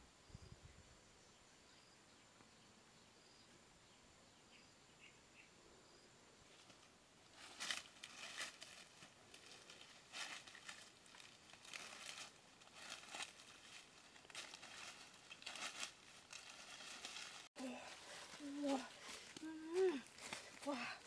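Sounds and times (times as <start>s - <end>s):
dry leaves rustling and crackling: 6.6s - 21.0s.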